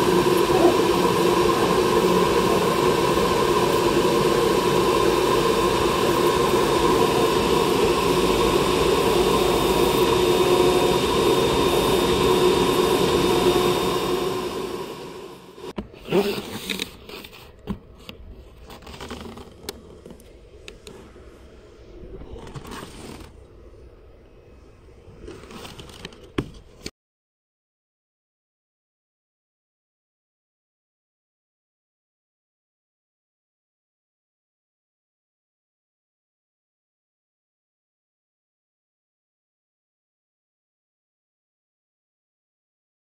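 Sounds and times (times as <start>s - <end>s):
cutting machine droning: 0.0s - 15.7s.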